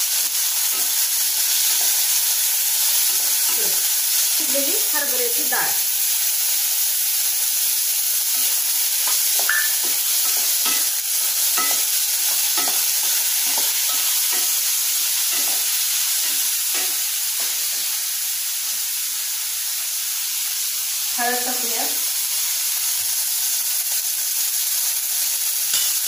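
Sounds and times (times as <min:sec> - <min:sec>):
vegetables sizzling in oil: 0:00.0 - 0:26.0
spatula stirring and scraping: 0:08.3 - 0:17.8.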